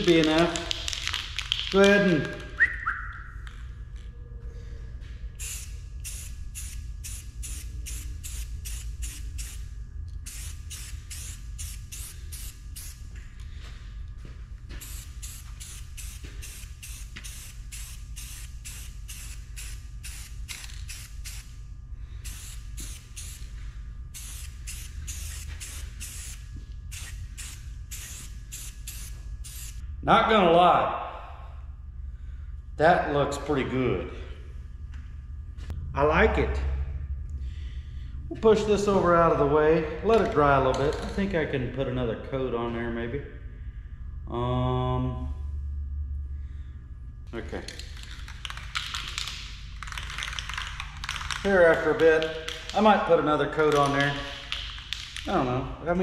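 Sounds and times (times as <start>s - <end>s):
low steady hum: 0.0s - 56.0s
aerosol spray can hissing: 5.4s - 13.0s, 14.8s - 21.6s, 22.2s - 29.8s.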